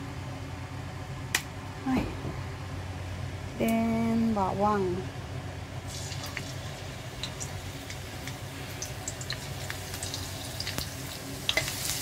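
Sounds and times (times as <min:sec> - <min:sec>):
garlic sizzling in oil: 0:05.9 - 0:12.0.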